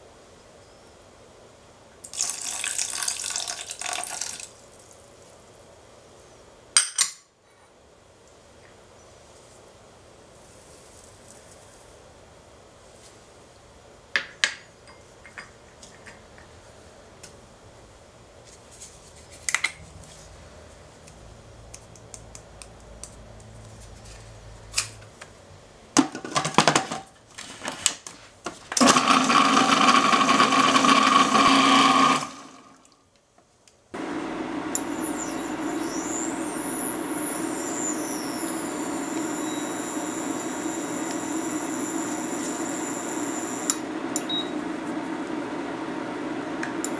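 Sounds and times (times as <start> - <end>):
food processor whirring: 28.8 - 32.8, 34.0 - 46.9
steady hum: 33.9 - 46.9.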